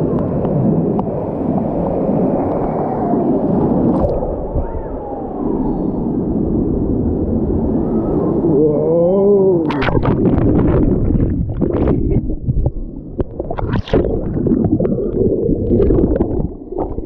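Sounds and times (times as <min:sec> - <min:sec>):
water rushing and sloshing: 0:00.0 - 0:08.6, 0:09.5 - 0:17.0.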